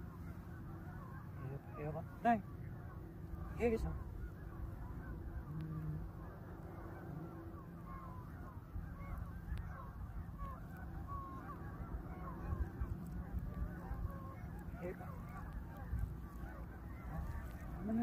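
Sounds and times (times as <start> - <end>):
geese honking: 0.0 - 18.0.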